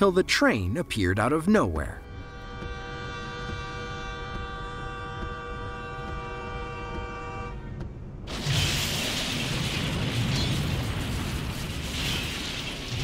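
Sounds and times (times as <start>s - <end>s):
train crashing into trailer: 8.3s - 13.0s.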